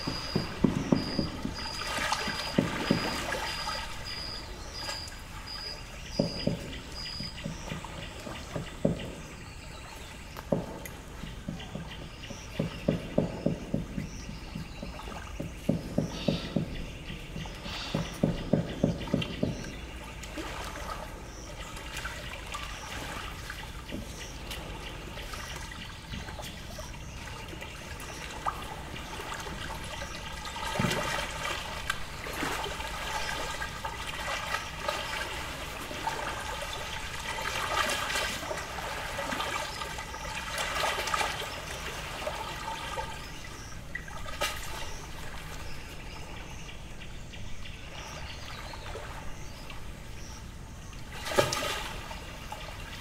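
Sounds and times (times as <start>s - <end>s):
sharp knocks: 0.0s - 3.7s, 6.1s - 9.3s, 10.4s - 14.7s, 15.4s - 16.8s, 17.8s - 19.7s
lake waves lapping on shore: 0.0s - 47.0s, 47.6s - 53.0s
bird calls: 0.0s - 53.0s.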